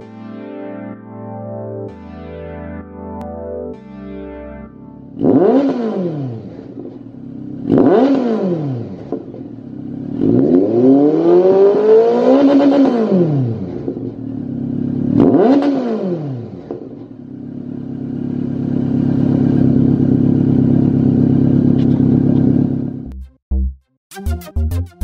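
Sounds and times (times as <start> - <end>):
motorcycle engine revving: 5.0 - 23.1.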